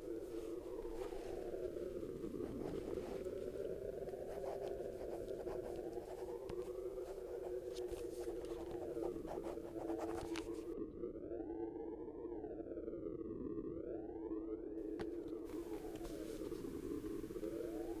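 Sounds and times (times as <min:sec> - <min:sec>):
pen scratching on paper: 0:02.3 - 0:10.6.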